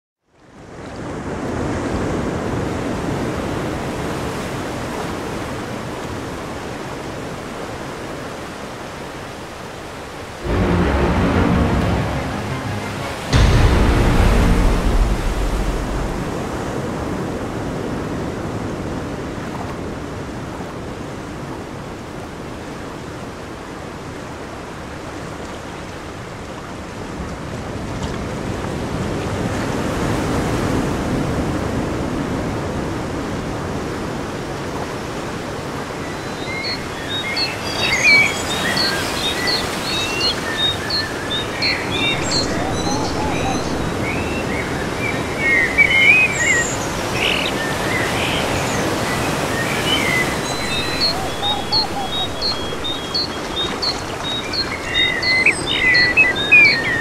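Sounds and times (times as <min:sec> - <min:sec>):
running water: 0:36.0 - 0:57.0.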